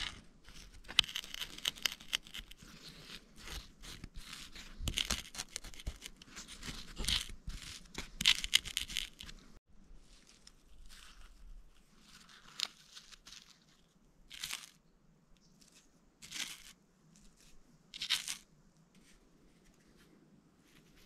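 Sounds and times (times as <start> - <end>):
fingertips crunching dried sap: 0.0 - 9.5, 10.1 - 14.8.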